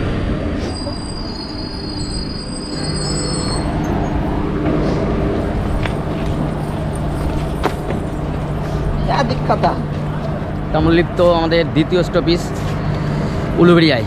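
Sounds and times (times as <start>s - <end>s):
train running rumble: 0.0s - 14.0s
train brakes squealing: 0.5s - 4.2s
steady low hum: 1.4s - 14.0s.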